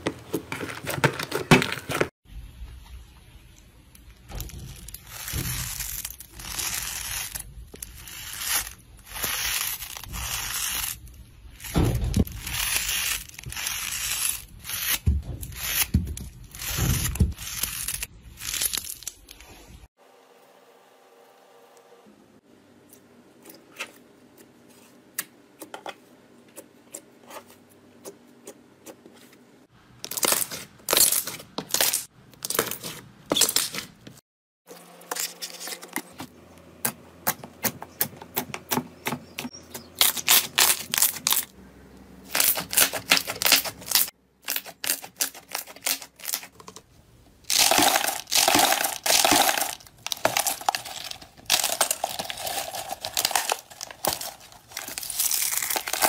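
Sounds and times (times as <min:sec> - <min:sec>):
dry crinkling of flakes: 0:47.5 - 0:56.0
slime crackling and popping: 0:47.5 - 0:56.0.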